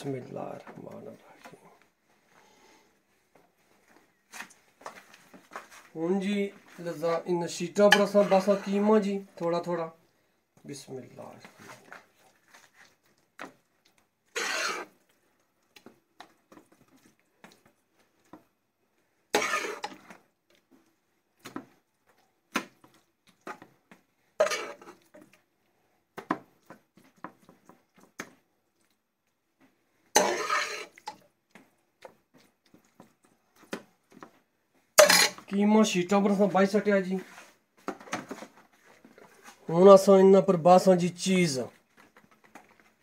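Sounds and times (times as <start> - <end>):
metal spoon scraping steel pot: 7.9 - 8.9, 14.3 - 14.9, 19.4 - 20.1, 24.4 - 25.0, 30.2 - 31.2, 35.0 - 35.6.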